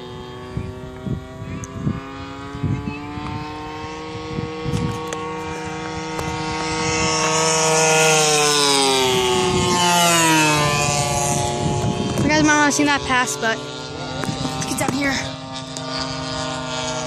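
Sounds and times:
model plane engine droning: 0.0 - 17.0.

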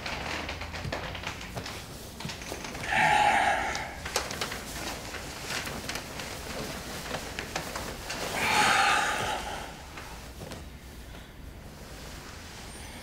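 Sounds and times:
bedding rustling and clicks: 0.0 - 2.9, 4.0 - 9.0, 9.8 - 12.7
man sighing: 2.8 - 4.1, 8.4 - 10.0.

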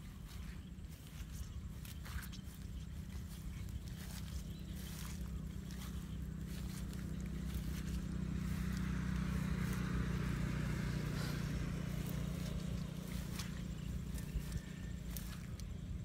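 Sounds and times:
distant engine droning: 0.0 - 16.0.

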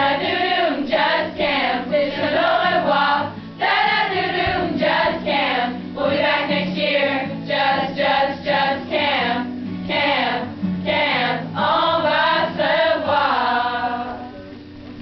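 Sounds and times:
audience singing together: 0.0 - 14.2.

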